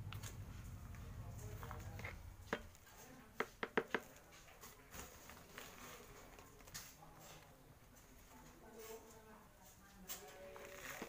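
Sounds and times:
hands tapping potting soil: 0:01.8 - 0:02.8, 0:03.4 - 0:04.3.

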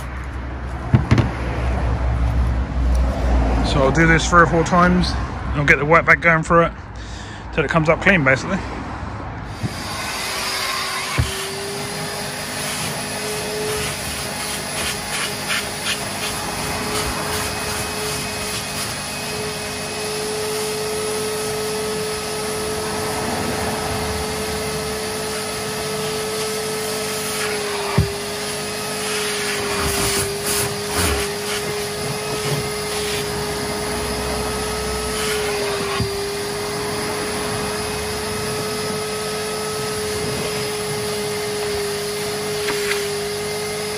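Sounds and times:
wet vac running: 0:09.6 - 0:23.0, 0:24.2 - 0:43.9.

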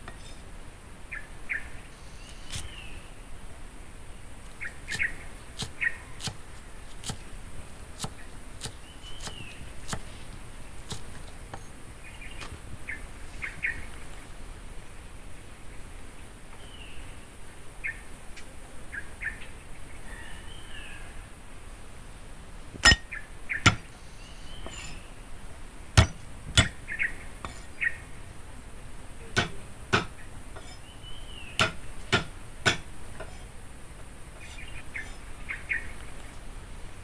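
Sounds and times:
birds chirping: 0:00.0 - 0:03.1, 0:04.5 - 0:14.4, 0:22.0 - 0:37.0
cleaver chopping on wooden block: 0:04.8 - 0:10.1, 0:22.8 - 0:23.1, 0:23.7 - 0:23.9, 0:26.0 - 0:26.8, 0:29.4 - 0:30.8, 0:31.6 - 0:33.5.

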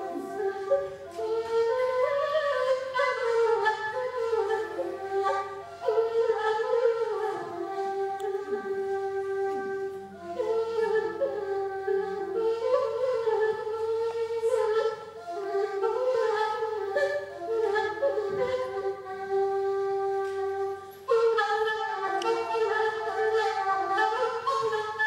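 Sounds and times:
flute melody: 0:00.0 - 0:25.0.

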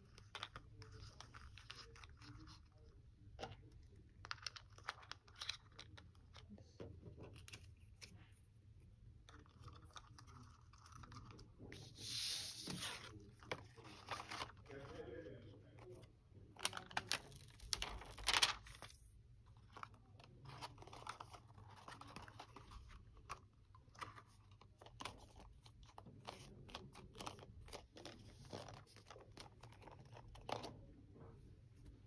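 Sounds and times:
card and plastic crinkling: 0:16.6 - 0:19.0.

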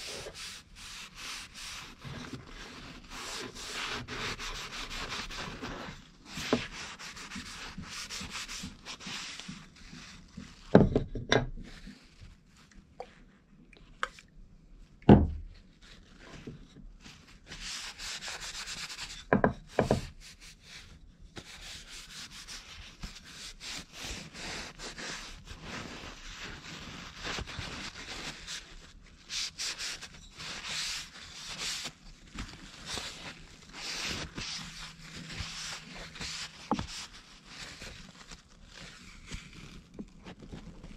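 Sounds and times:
paper towel rubbing wooden spoon: 0:00.0 - 0:10.6, 0:17.3 - 0:40.9.

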